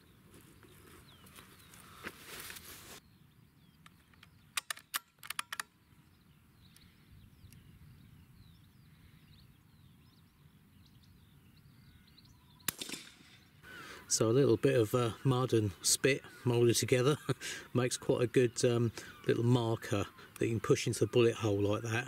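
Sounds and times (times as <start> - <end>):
faint birdsong: 0.0 - 22.0
sharp clicks: 3.8 - 5.8, 12.7 - 13.3
rifle shot: 12.7 - 13.5.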